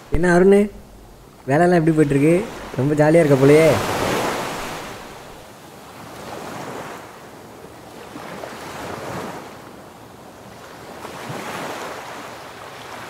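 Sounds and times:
surf breaking on beach: 1.6 - 5.5.

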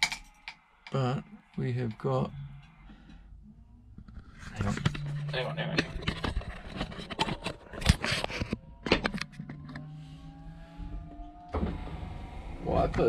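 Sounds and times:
wiper motor humming and whining: 8.4 - 13.0.

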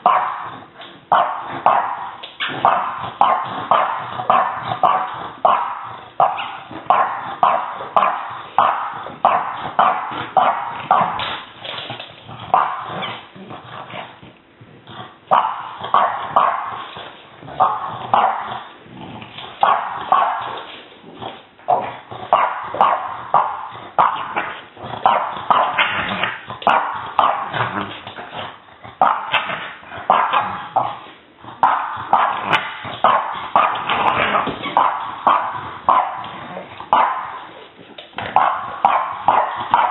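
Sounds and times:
puppy barking: 0.0 - 0.5, 1.1 - 11.2, 12.5 - 13.2, 15.3 - 16.8, 17.6 - 18.6, 19.6 - 20.6, 21.7 - 27.8, 31.6 - 36.3, 36.9 - 37.4, 38.3 - 39.9.

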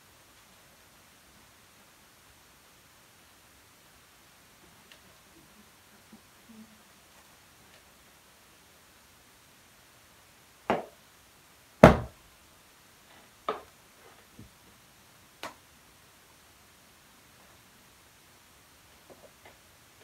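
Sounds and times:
dull knocks: 11.8 - 12.1.

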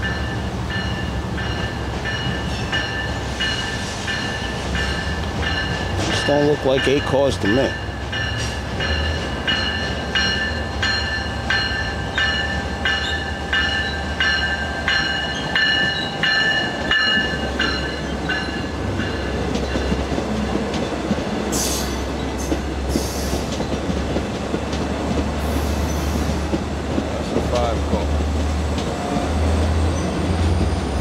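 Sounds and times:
high metallic ringing: 0.0 - 19.4
low train rumble: 0.0 - 31.0
train wheels clacking: 0.0 - 31.0.

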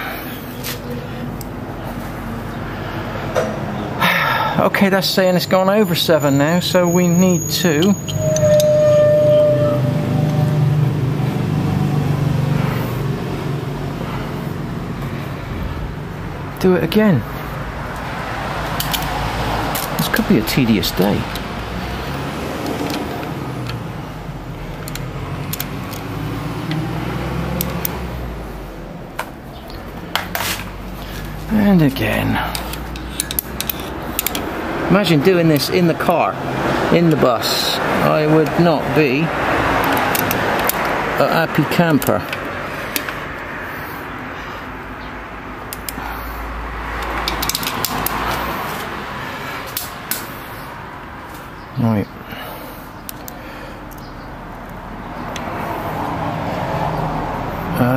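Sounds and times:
spanner clicking on metal bolts: 32.5 - 34.5, 39.8 - 41.0.

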